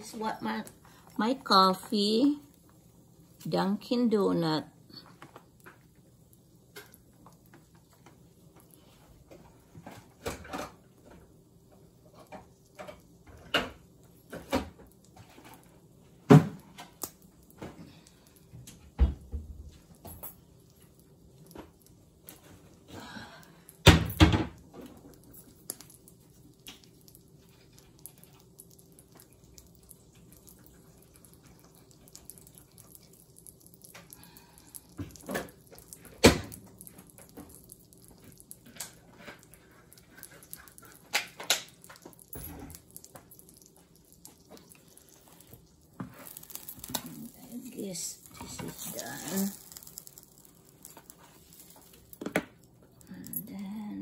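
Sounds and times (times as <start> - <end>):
faint steady hum: 0.0 - 54.0
knocks and clunks of kitchen items: 9.2 - 17.0, 17.6 - 20.3, 23.8 - 25.1, 35.0 - 37.5, 52.1 - 52.7.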